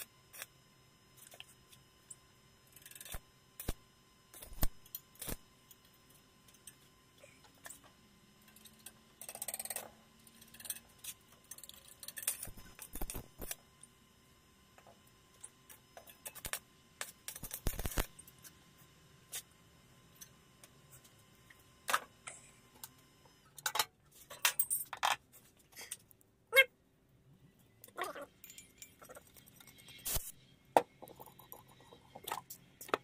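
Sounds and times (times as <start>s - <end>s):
metallic clinks of tools: 28.4s - 29.8s.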